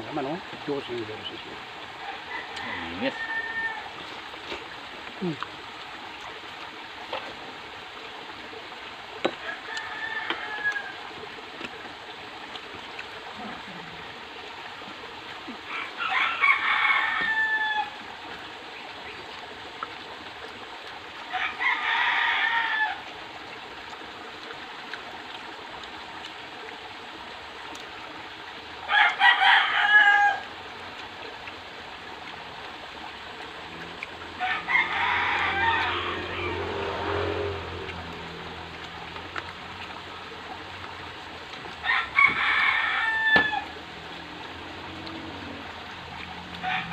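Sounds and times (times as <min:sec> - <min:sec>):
rooster crowing: 0:02.0 - 0:04.0, 0:09.4 - 0:11.1, 0:15.7 - 0:18.0, 0:21.3 - 0:23.1, 0:28.9 - 0:30.5, 0:34.4 - 0:37.8, 0:41.8 - 0:43.8, 0:46.6 - 0:46.9.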